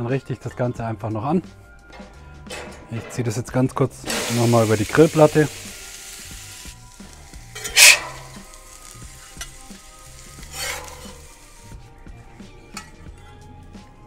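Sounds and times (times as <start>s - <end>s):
frying hiss: 3.8s - 11.9s
steak sizzling on a griddle: 4.0s - 11.9s.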